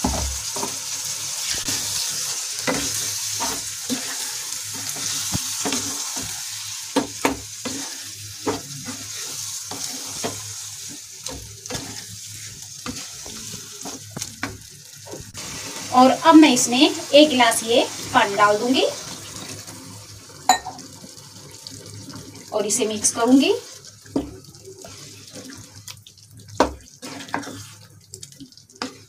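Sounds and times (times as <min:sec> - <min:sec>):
food sizzling in a pan: 0:00.0 - 0:29.0
spatula scraping and knocking pan: 0:02.6 - 0:14.7, 0:26.6 - 0:27.8.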